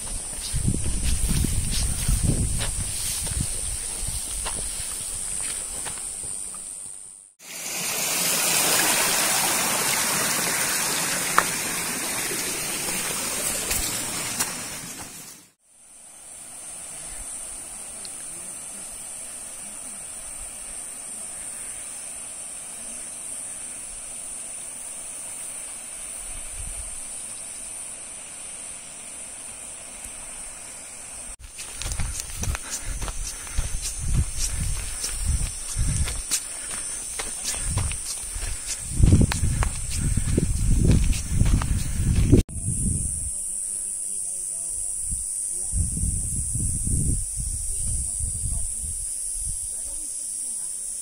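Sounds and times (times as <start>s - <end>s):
rushing water: 7.4s - 15.5s.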